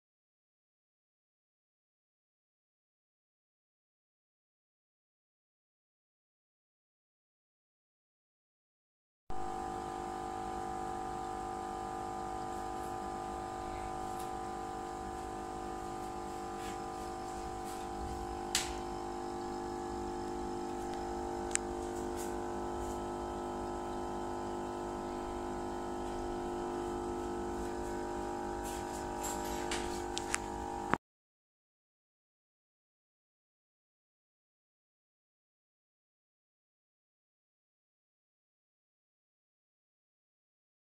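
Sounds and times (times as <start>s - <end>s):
air pump humming: 9.3s - 31.0s
water bubbling: 9.6s - 28.6s.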